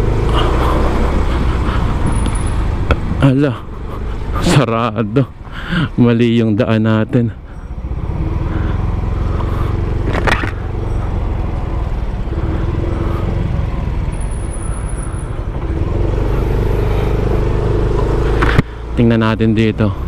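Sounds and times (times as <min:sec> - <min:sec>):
motor scooter engine running: 0:07.4 - 0:19.0.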